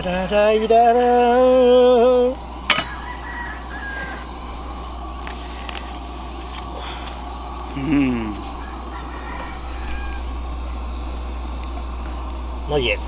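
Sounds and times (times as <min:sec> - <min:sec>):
steady low hiss: 0:00.0 - 0:13.0
rooster crowing: 0:02.4 - 0:12.2.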